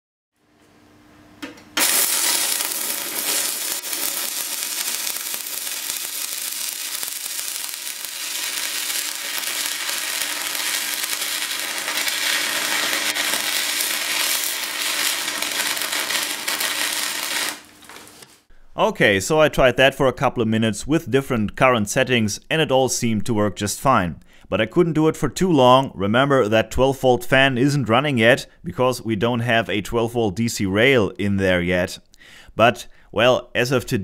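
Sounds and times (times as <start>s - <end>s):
welding arc crackling and hissing: 1.8s - 18.5s.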